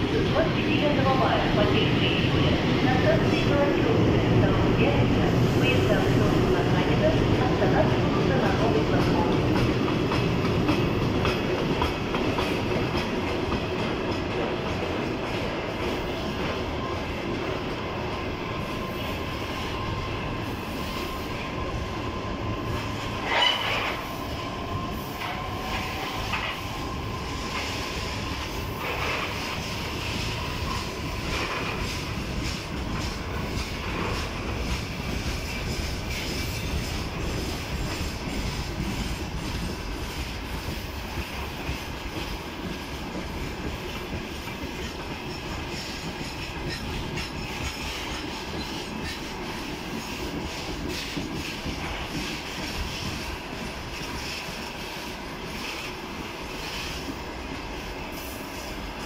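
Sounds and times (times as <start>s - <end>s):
freight train wheels rumbling: 0.0s - 59.0s
high wheel squeal: 22.7s - 24.4s.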